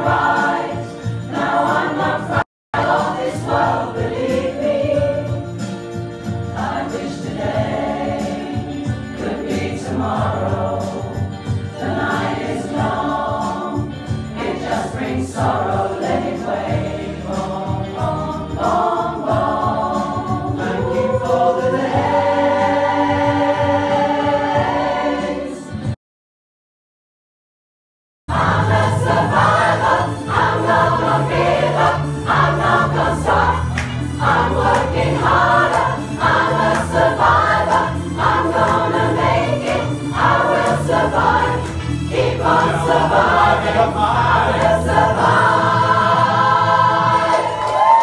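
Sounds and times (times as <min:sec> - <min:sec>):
mixed choir singing: 0:00.0 - 0:26.0, 0:28.3 - 0:48.0.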